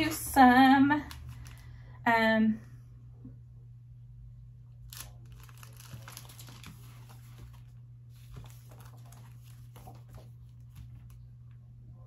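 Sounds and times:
steady low hum: 0.0 - 12.0
packaging crinkling and rustling: 1.0 - 1.8, 4.8 - 11.2.

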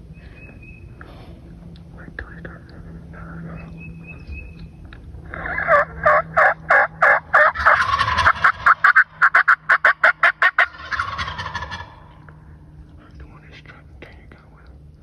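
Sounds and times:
turkey yelps: 5.3 - 12.0.

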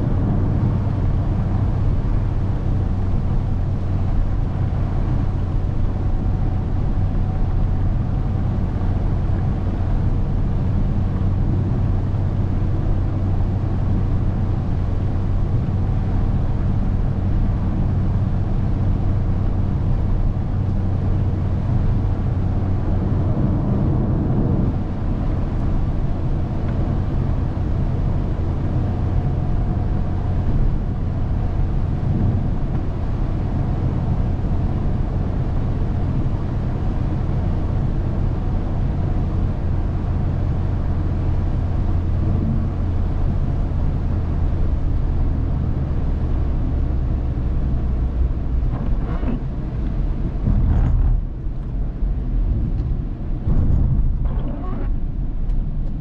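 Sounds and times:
car engine and road rumble: 0.0 - 56.0.

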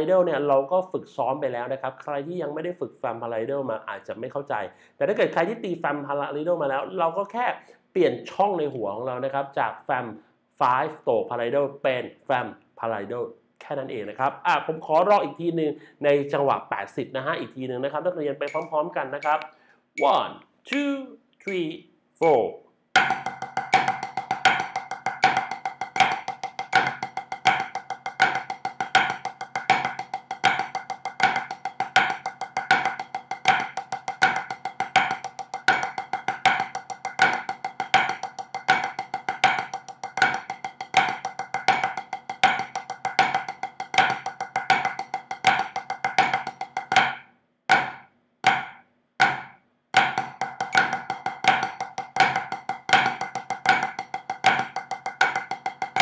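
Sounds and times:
drumsticks on a practice pad: 18.4 - 21.6, 23.0 - 56.0.

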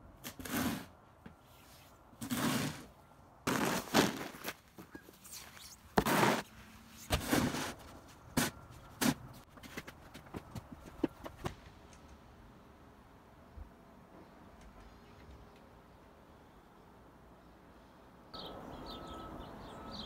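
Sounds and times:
snow shovel scraping pavement: 0.2 - 1.0, 2.2 - 2.9, 3.5 - 9.3.

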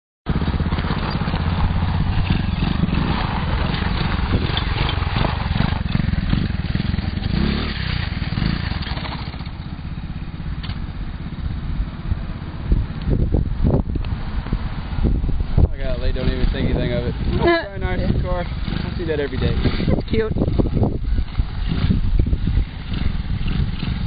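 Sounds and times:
rc truck engine running: 0.3 - 9.8, 18.5 - 24.0.

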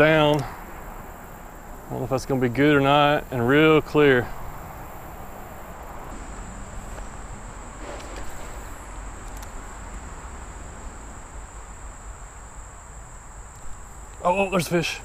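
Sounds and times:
insects trilling: 0.0 - 15.0
soft steady hiss: 0.0 - 15.0
brief rustle: 7.8 - 9.6.

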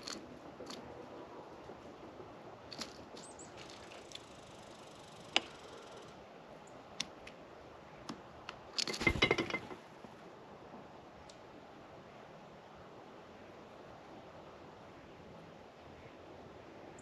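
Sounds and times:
birds pecking seeds: 0.0 - 10.2
thin high bird chirps: 3.1 - 6.8.

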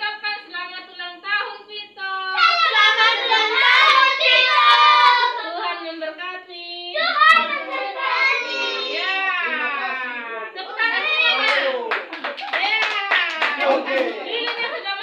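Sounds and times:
children and adults singing: 2.4 - 5.9
hand claps: 11.4 - 14.8.

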